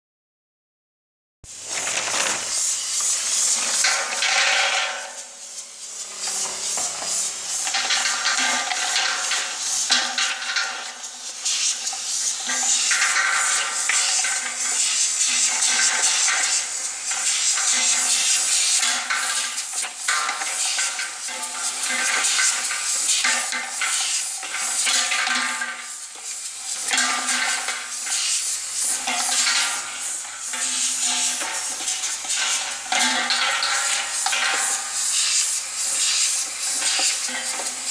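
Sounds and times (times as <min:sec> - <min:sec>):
plastic caps rattling in steel bowl: 0:01.6 - 0:02.7.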